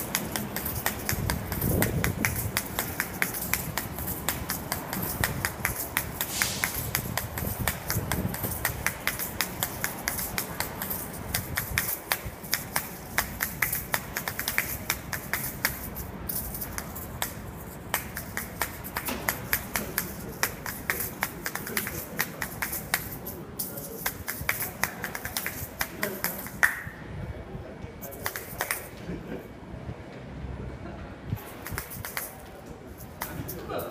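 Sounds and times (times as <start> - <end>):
seed rattle: 0.0 - 26.7
shaker shells clacking: 0.0 - 27.0, 28.0 - 29.0, 31.4 - 33.9.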